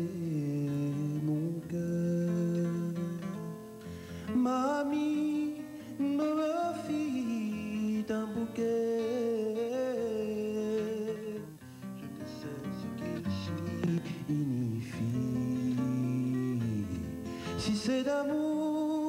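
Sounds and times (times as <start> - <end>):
man singing: 0.0 - 3.6, 4.2 - 19.0
acoustic guitar: 0.0 - 19.0.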